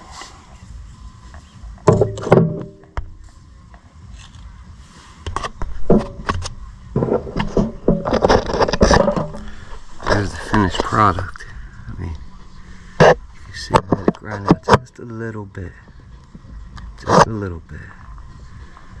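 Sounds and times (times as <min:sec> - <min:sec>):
sharp knocks and clanks: 0:01.8 - 0:03.1, 0:05.3 - 0:11.0, 0:13.0 - 0:15.0.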